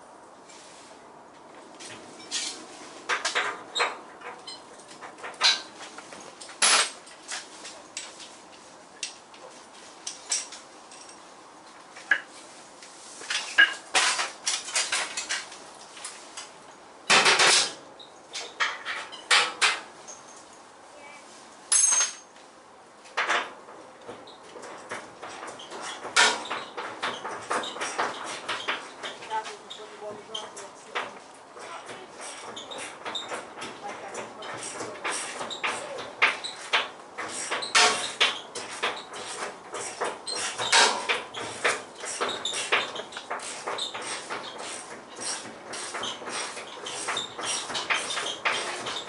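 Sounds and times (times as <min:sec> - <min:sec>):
metallic clanks of tools: 0:05.2 - 0:05.7, 0:06.4 - 0:08.2, 0:17.1 - 0:20.5, 0:21.7 - 0:22.3, 0:24.6 - 0:29.3, 0:30.4 - 0:49.0.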